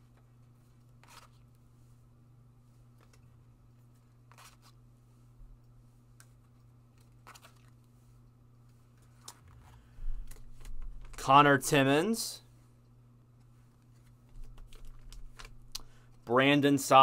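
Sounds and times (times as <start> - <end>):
cards rustling and clicking: 0.0 - 1.7, 2.8 - 4.8, 5.6 - 11.8, 13.4 - 16.3
low steady hum: 0.0 - 17.0.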